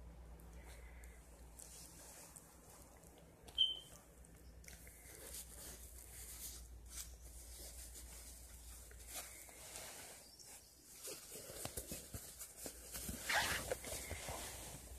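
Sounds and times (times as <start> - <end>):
kittens rustling in fabric: 0.6 - 3.4, 4.7 - 14.9.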